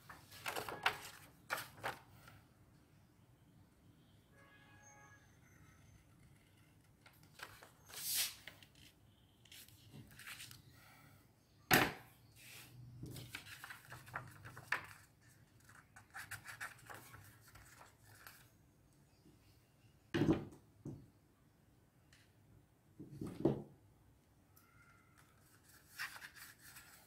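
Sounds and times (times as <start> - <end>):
paper rustling: 0.1 - 2.3, 7.0 - 10.6, 13.2 - 18.5, 25.4 - 27.0.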